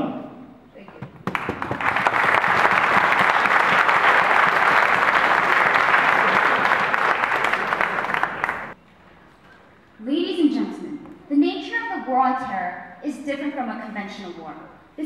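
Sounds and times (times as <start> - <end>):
audience applauding: 1.2 - 8.8.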